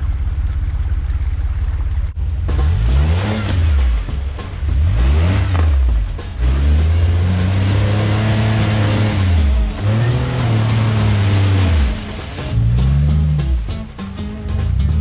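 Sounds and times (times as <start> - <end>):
engine revving hard: 2.5 - 13.7.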